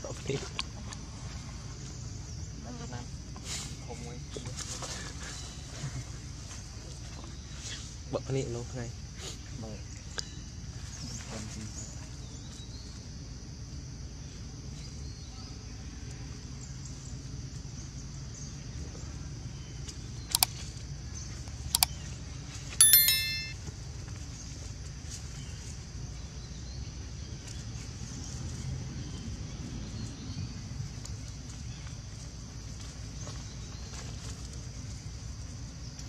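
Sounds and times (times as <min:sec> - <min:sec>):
bell ding: 0:22.8 - 0:23.6.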